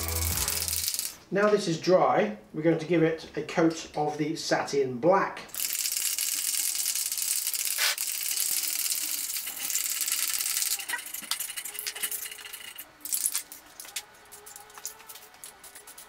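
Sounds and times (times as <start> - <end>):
spray can rattling: 0.0 - 1.2, 5.5 - 16.0.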